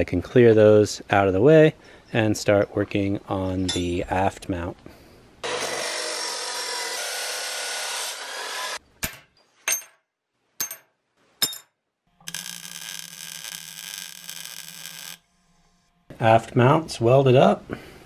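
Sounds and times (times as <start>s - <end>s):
power tool cutting steel: 5.4s - 8.8s, 12.2s - 16.1s
welder arc hiss: 12.3s - 15.2s.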